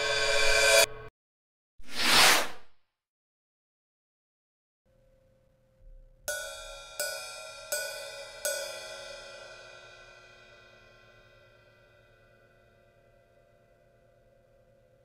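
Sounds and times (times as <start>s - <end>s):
hi-hat cymbal hits ringing: 6.3s - 13.6s.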